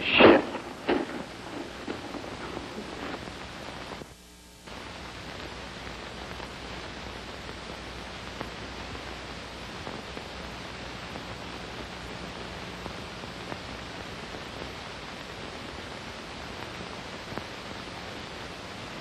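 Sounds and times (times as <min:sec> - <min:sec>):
low hum: 0:00.0 - 0:04.0
recording hiss: 0:00.0 - 0:19.0.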